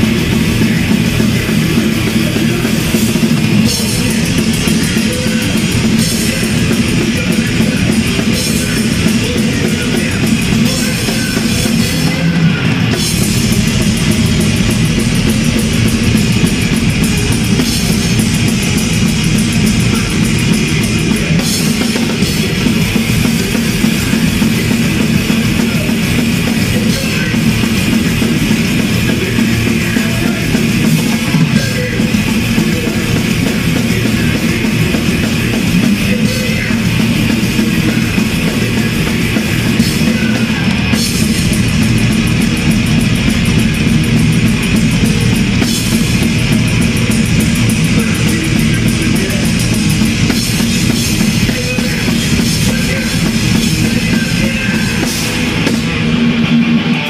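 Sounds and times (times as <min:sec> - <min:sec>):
fast drum kit with cymbals: 0:00.0 - 0:57.0
thrash metal music: 0:00.0 - 0:57.0.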